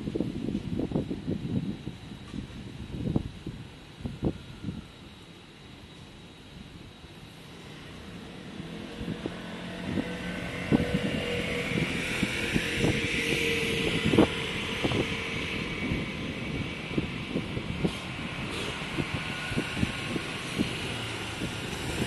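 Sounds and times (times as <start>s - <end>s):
motor vehicle passing: 7.7s - 16.0s.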